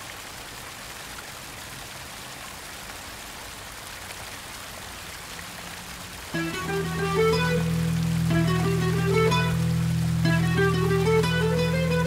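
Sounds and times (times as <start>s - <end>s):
rushing water: 0.0s - 12.0s.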